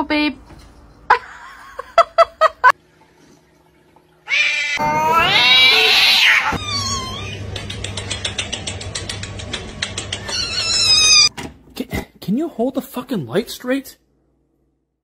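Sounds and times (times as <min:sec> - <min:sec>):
cat yowling: 0:04.3 - 0:07.5, 0:10.3 - 0:11.3.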